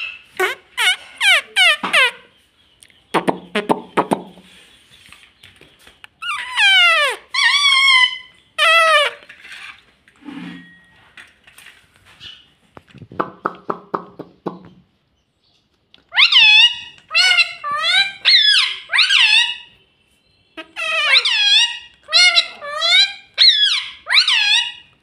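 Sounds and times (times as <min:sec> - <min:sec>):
parakeets squawking: 0:00.0 - 0:02.4, 0:06.2 - 0:09.3, 0:16.1 - 0:19.7, 0:20.6 - 0:24.9.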